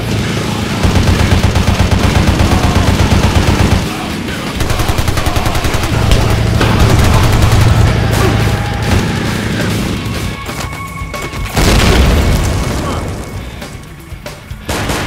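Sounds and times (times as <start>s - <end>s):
automatic rifle fire: 4.6s - 7.9s.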